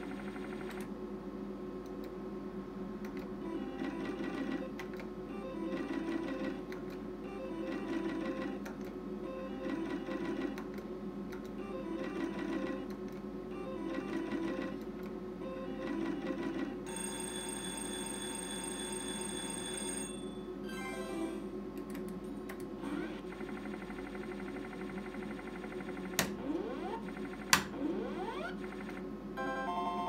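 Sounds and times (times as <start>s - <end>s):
slot machine reel-spin ticking: 5.4s - 6.7s, 7.3s - 8.7s, 9.4s - 10.7s, 11.6s - 13.0s, 13.6s - 14.8s, 23.0s - 30.0s.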